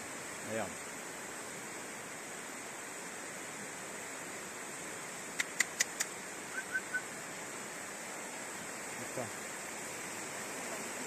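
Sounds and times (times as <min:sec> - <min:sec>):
river rushing: 0:00.0 - 0:11.0
sharp clicks: 0:05.4 - 0:06.1
high chirps: 0:05.6 - 0:07.1.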